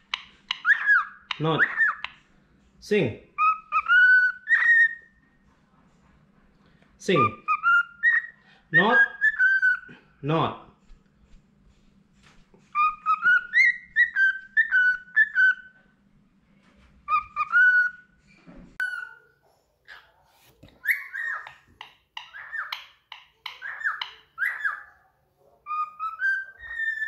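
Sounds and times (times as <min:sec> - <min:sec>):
cockatiel whistling: 0:00.5 - 0:02.1, 0:03.4 - 0:05.1, 0:07.4 - 0:09.9, 0:12.7 - 0:15.8, 0:17.1 - 0:18.1, 0:20.8 - 0:21.6, 0:23.5 - 0:24.9, 0:25.7 - 0:27.0.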